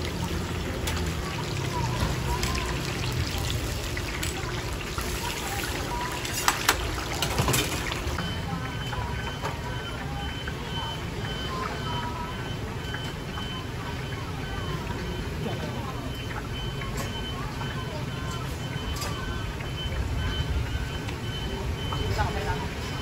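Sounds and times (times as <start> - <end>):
hot oil sizzling in a wok: 0.0 - 8.2.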